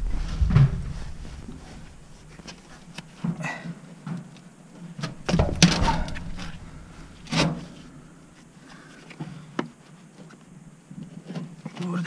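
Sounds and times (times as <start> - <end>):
scraping rattling: 0.0 - 3.2, 5.0 - 8.2.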